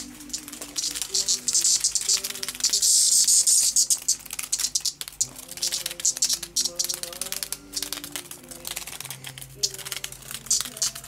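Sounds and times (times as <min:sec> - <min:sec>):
cicada buzz: 0:00.0 - 0:08.3
background music with melody: 0:00.0 - 0:11.0
cicada clicks and rasps: 0:00.0 - 0:11.0.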